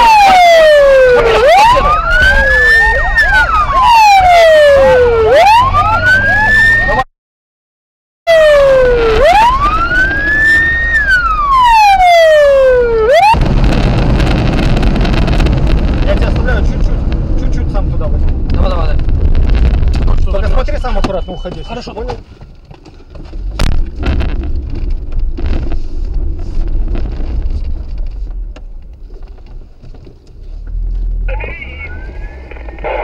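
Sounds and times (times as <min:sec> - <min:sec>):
car engine and road rumble: 0:00.0 - 0:07.0, 0:08.3 - 0:33.0
police siren wailing: 0:00.0 - 0:07.1, 0:08.3 - 0:13.5.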